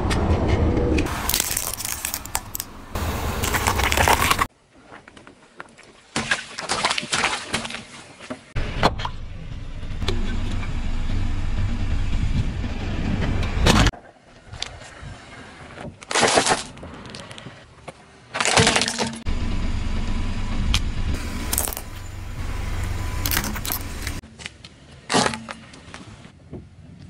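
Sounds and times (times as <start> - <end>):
car tyre rolling slowly: 0.0 - 5.5, 19.3 - 24.2
objects cracking under tyre: 1.0 - 7.8, 15.7 - 19.2, 21.4 - 26.1.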